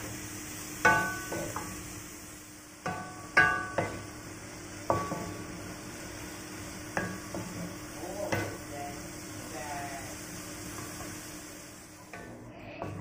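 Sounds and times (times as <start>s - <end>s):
spatula knocking and scraping wok: 0.0s - 2.0s, 2.8s - 5.6s, 6.9s - 8.7s.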